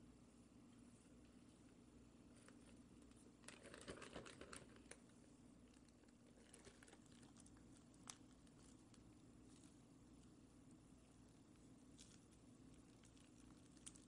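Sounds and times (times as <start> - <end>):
low steady hum: 0.0 - 14.0
crackles: 2.3 - 14.0
plastic bag crinkling: 3.4 - 5.1, 5.7 - 9.8.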